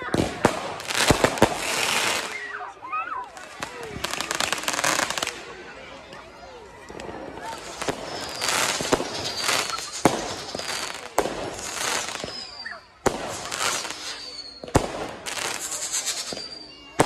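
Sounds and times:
fireworks bangs: 0.0 - 5.5, 6.9 - 17.0
fireworks crackling and hissing: 0.0 - 17.0
faint falling whistles: 12.0 - 12.9, 13.5 - 14.8, 15.5 - 17.0.

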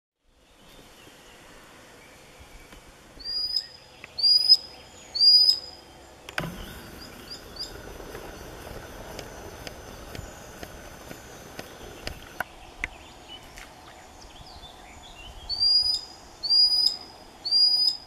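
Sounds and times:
sandpiper calling: 3.2 - 5.8, 6.4 - 12.4, 15.5 - 18.0.

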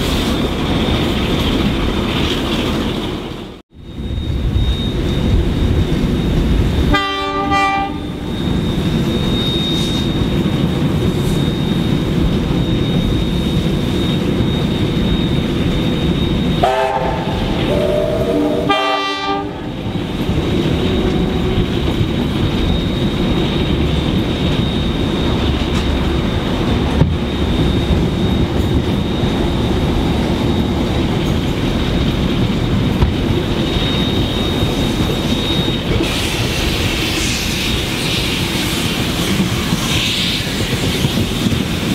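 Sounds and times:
train rumbling on rails: 0.0 - 41.9
train horn blasts: 6.9 - 8.3, 16.6 - 19.8, 20.9 - 21.8.

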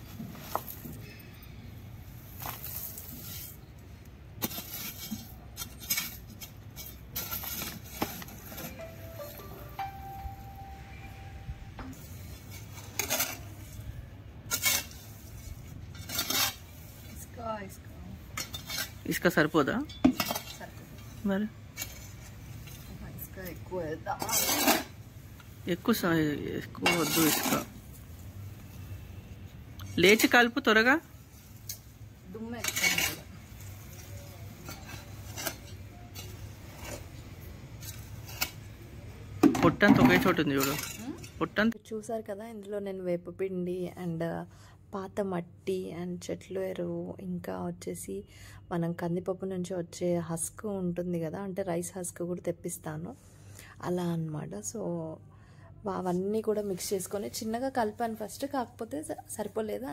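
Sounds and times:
trowel scraping gravelly soil: 2.1 - 10.0, 12.0 - 17.6, 18.2 - 19.6, 20.2 - 25.5, 26.3 - 28.3, 31.2 - 38.7.

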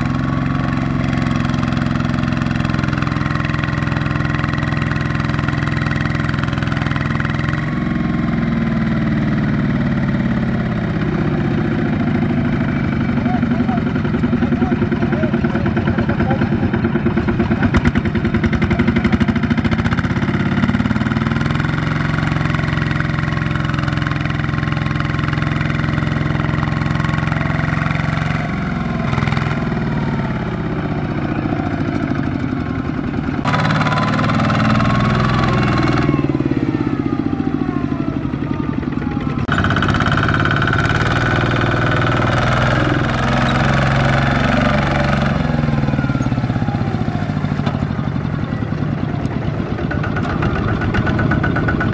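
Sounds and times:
diesel engine chugging: 0.0 - 51.9.

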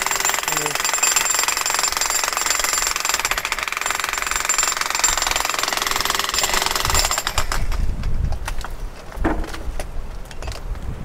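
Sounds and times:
jackhammer breaking concrete: 0.0 - 7.9.

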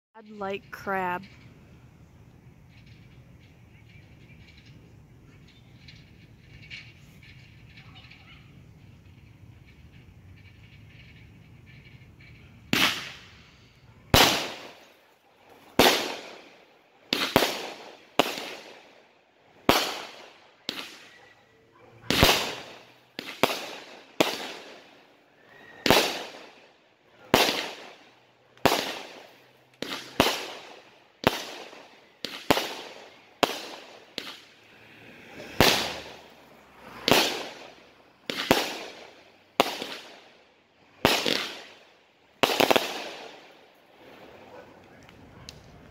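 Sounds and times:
firework cake bangs: 14.2 - 15.0, 15.7 - 18.8, 19.6 - 21.1, 22.1 - 24.9, 25.8 - 26.6, 27.3 - 28.0, 28.6 - 34.5, 35.5 - 40.2, 41.0 - 41.8.

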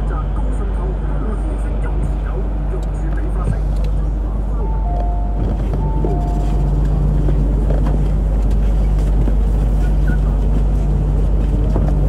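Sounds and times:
train interior hum and rumble: 0.0 - 12.0
two-note tone: 4.6 - 7.6.

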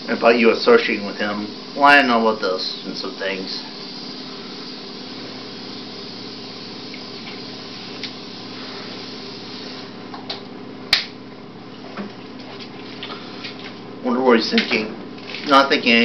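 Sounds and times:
low room hum: 0.0 - 16.0.

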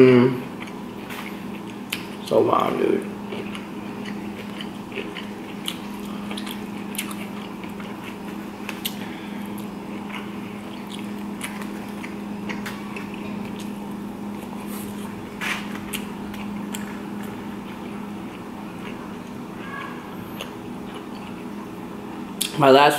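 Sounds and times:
steady low hum: 0.0 - 22.9
chewing and wet mouth sounds: 0.5 - 22.6.

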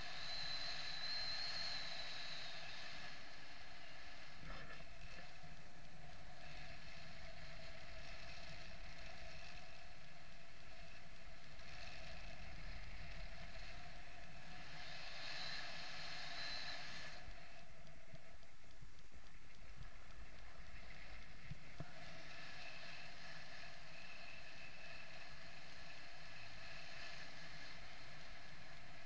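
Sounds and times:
whistling tone: 0.0 - 3.4, 14.0 - 17.6.

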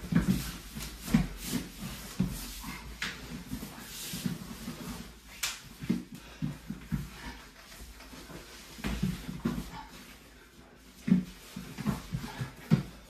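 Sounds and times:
bodies thudding on mat: 0.0 - 10.0.

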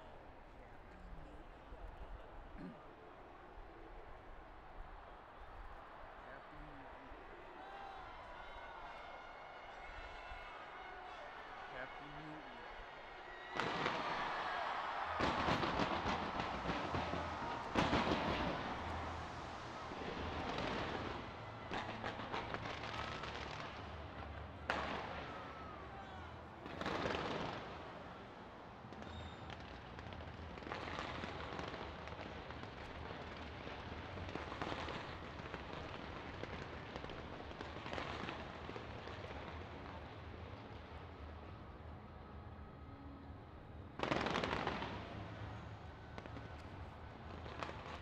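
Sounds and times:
fireworks crackling: 7.0 - 41.6, 43.9 - 48.0
fireworks bangs: 13.4 - 41.4, 43.9 - 48.0.

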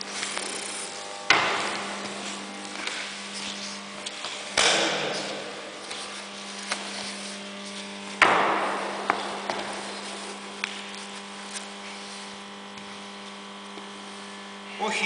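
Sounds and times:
low electrical hum: 0.0 - 15.0
thuds on wooden floor: 1.3 - 2.2, 8.2 - 10.0.

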